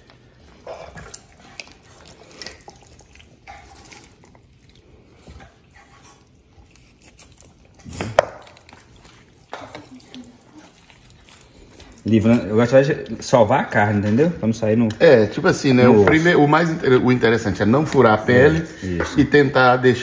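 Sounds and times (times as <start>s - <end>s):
fingers working raw chicken: 0.0s - 15.1s.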